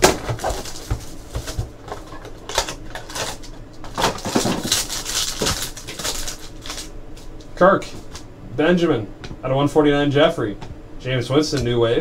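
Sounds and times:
plastic wrapper crinkling: 0.0 - 8.2.

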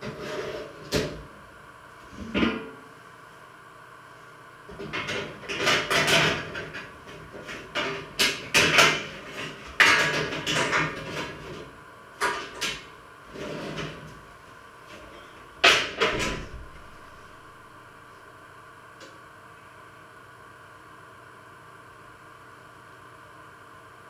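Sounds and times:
cookware knocking and clattering: 9.8 - 11.2.

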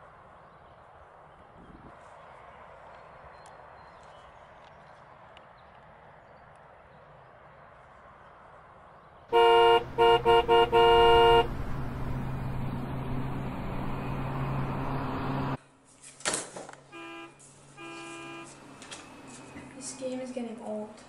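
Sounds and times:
street traffic noise: 0.0 - 21.0
car horn honking: 9.3 - 12.3, 16.9 - 18.6.

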